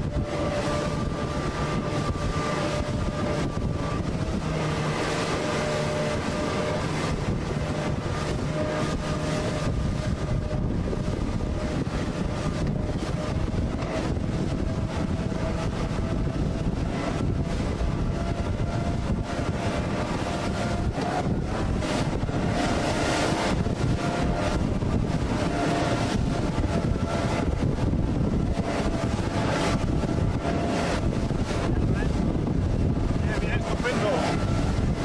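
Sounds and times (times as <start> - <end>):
boat engine droning: 0.0 - 35.0
choppy water against hull: 0.0 - 35.0
wind buffeting microphone: 0.0 - 35.0.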